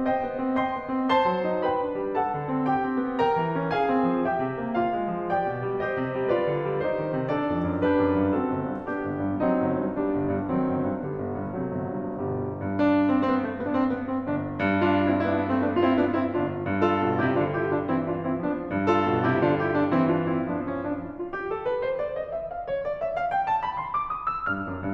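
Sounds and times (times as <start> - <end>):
piano music: 0.0 - 24.9.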